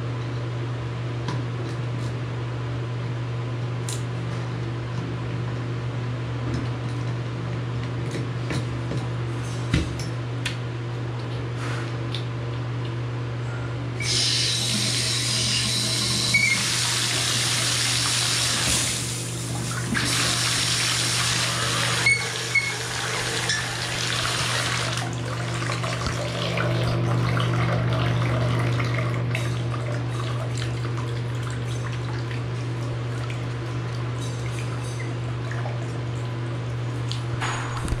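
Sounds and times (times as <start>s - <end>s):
water rushing from tap: 14.0s - 32.5s.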